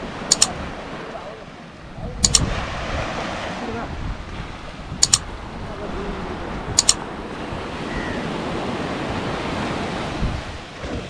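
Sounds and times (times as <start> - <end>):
surf washing onto beach: 0.0 - 11.0
wind on microphone: 0.0 - 11.0
mouse double click: 0.3 - 0.6, 2.2 - 2.5, 5.0 - 5.3, 6.8 - 7.0.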